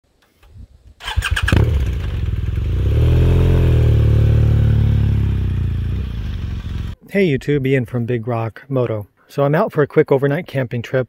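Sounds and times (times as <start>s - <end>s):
motorcycle engine starting and revving: 1.0s - 7.0s.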